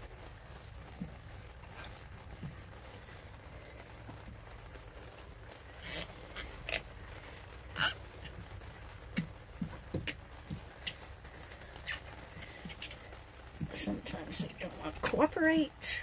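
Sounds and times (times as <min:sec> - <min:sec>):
rubbery squeaks: 0:05.1 - 0:13.7
rubber cap scraping on cable: 0:05.8 - 0:06.9, 0:07.7 - 0:08.4, 0:11.8 - 0:13.8.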